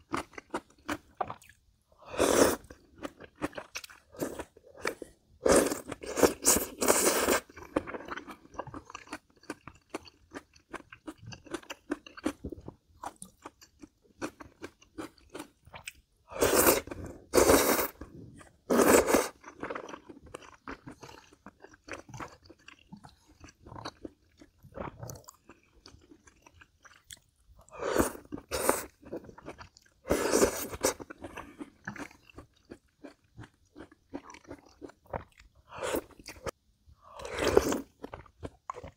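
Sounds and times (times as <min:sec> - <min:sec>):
slurping noodles: 0:04.2 - 0:07.6, 0:16.3 - 0:19.4, 0:30.0 - 0:31.2
soft wet chewing: 0:18.3 - 0:36.6.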